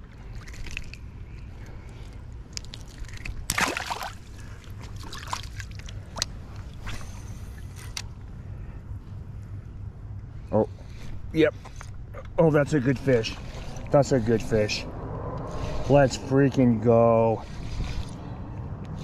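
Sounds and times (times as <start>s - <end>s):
river water sloshing and splashing: 0.0s - 8.0s, 12.9s - 14.0s
steady low water rush: 0.0s - 19.0s
fish splashing into water: 2.5s - 6.3s.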